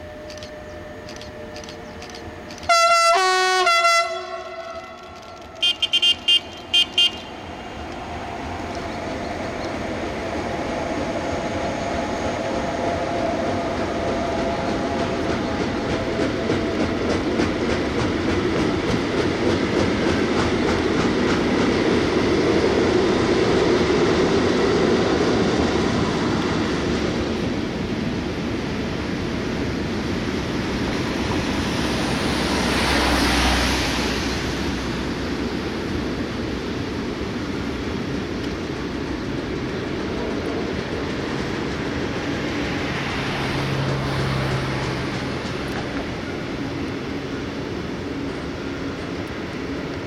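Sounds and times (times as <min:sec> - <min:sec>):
two-tone locomotive horn: 0:00.0 - 0:07.5
short high-pitched horn tones: 0:02.6 - 0:07.4.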